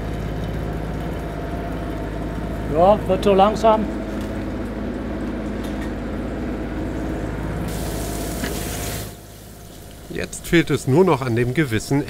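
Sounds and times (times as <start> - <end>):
steady low hum: 0.0 - 12.0
fish sizzling in hot oil: 7.7 - 11.6.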